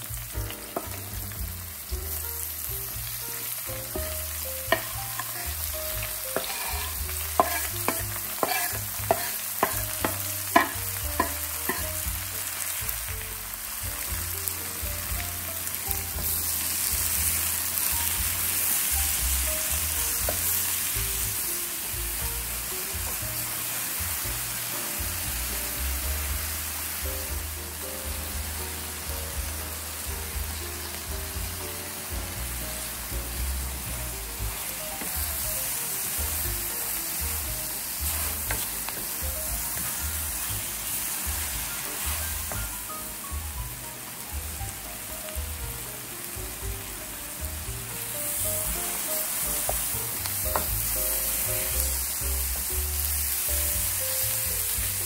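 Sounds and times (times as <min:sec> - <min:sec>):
light background music: 0:00.0 - 0:55.0
onions sizzling in frying pan: 0:00.0 - 0:55.0
wooden spatula stirring: 0:06.4 - 0:10.7, 0:37.8 - 0:42.6.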